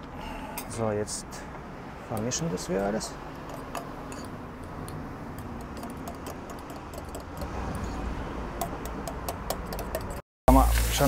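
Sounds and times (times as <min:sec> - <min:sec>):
spoon clicking against ceramic bowl: 0:03.4 - 0:07.5, 0:08.6 - 0:10.2.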